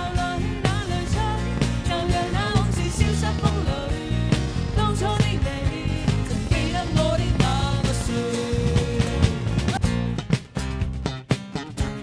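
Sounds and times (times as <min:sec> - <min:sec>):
man and woman singing: 0:00.0 - 0:09.7
strummed acoustic guitars: 0:00.0 - 0:12.0
steady beat: 0:03.0 - 0:11.2.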